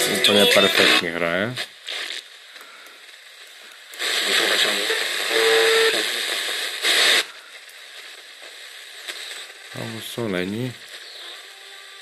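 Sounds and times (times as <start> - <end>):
faint hiss: 0.0 - 12.0
radio static: 0.0 - 12.0
radio whistle: 0.1 - 1.0, 4.1 - 7.5, 11.0 - 11.8.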